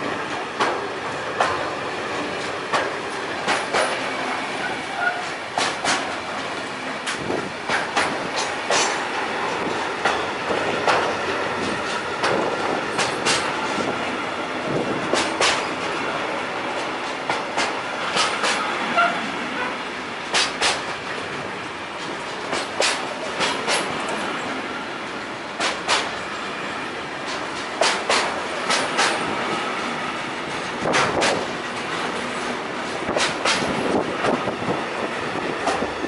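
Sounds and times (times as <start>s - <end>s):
freight train rumbling past: 0.0s - 36.0s
sharp wheel clacks: 15.1s - 15.9s, 27.8s - 29.3s.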